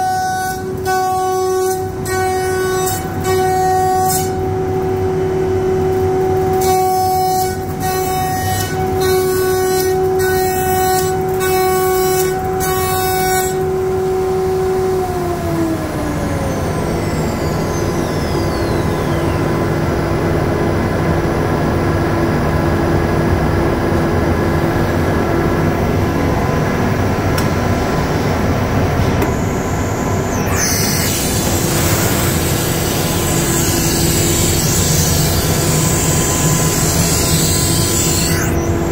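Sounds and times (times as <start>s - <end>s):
router spindle whining: 14.7s - 19.7s, 29.0s - 38.9s
rushing machine noise: 27.7s - 38.9s
bursts of cutting noise: 30.2s - 38.9s.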